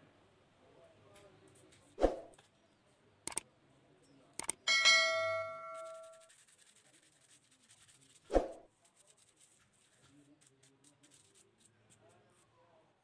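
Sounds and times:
sharp clicks: 0:04.4 - 0:04.6
bright bell chime: 0:04.7 - 0:06.2.

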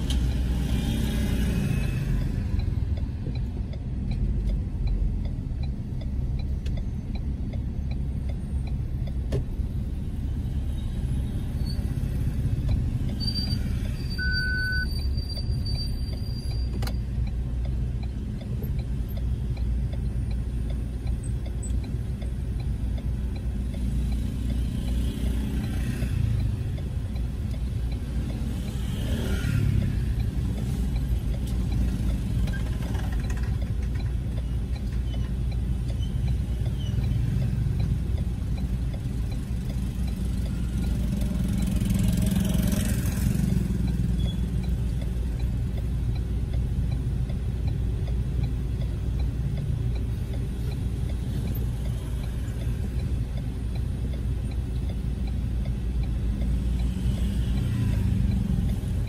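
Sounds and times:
car engine and road rumble: 0:00.0 - 0:59.0
other traffic: 0:00.0 - 0:59.0
short high beep: 0:13.2 - 0:16.0.

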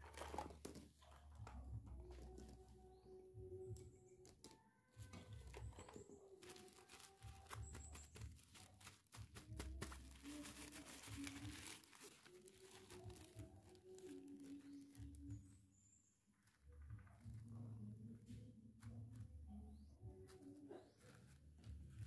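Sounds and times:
cloth rustling and crinkling: 0:05.1 - 0:15.4.

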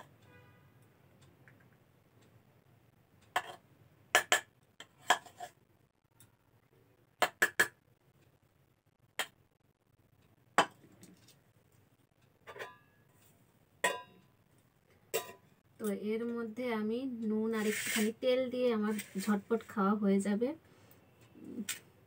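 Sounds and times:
metal ladle clinking on pot: 0:13.8 - 0:14.2, 0:15.2 - 0:15.4.

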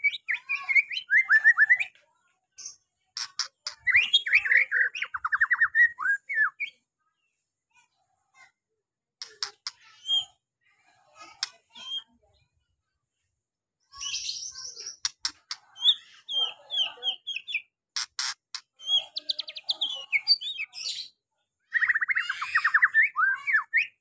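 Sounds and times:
songbird singing varied song: 0:03.7 - 0:06.8, 0:15.8 - 0:17.8, 0:18.8 - 0:24.0.

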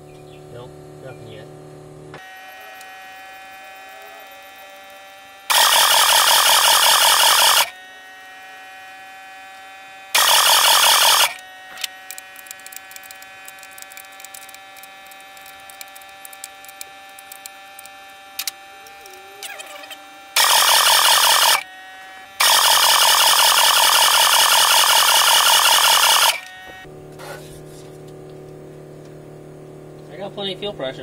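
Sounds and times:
electric fuel pump whine: 0:00.0 - 0:31.0
loud harsh bursts: 0:05.5 - 0:07.8, 0:10.1 - 0:11.4, 0:20.3 - 0:21.7, 0:22.4 - 0:26.5.

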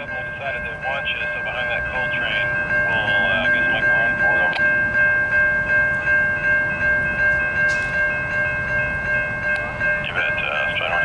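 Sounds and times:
railroad crossing bell ringing: 0:00.0 - 0:11.0
low rumble: 0:01.8 - 0:06.8.

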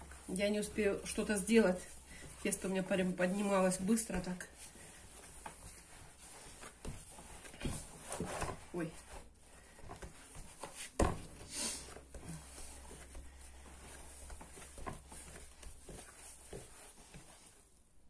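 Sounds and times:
dough pressing and patting: 0:00.0 - 0:18.0
dough thump: 0:05.4 - 0:17.5.

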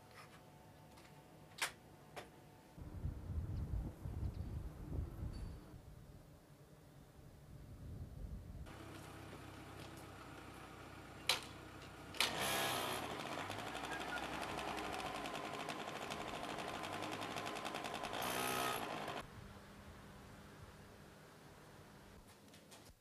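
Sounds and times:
motor scooter engine buzzing: 0:08.7 - 0:19.3.

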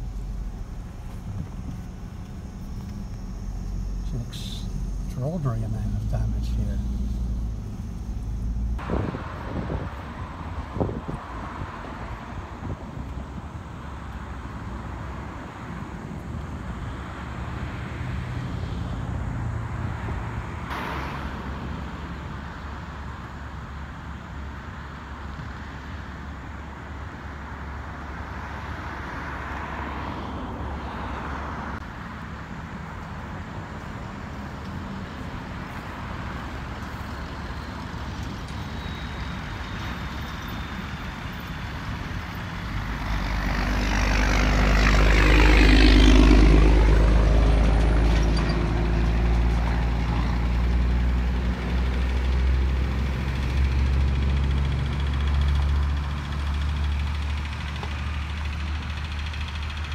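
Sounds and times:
steady low rumble: 0:00.0 - 0:11.3
faint vehicle passing: 0:00.0 - 0:12.8, 0:41.5 - 0:59.8
heavy vehicle engine passing: 0:00.0 - 0:15.7, 0:28.3 - 0:59.9.

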